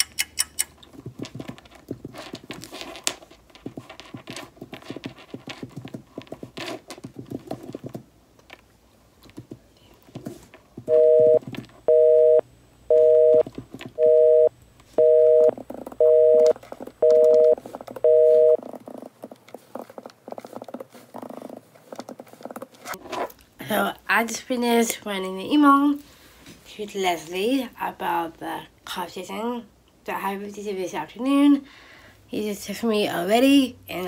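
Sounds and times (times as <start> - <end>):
telephone busy signal beeps: 10.9 - 13.4, 14.0 - 18.6
computer keyboard typing: 15.3 - 19.4.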